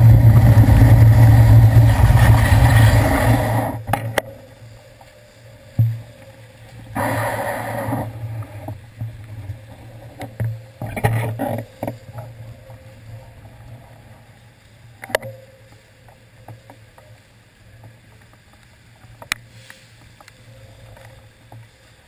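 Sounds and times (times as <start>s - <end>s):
traffic on wet street: 0.0s - 3.8s.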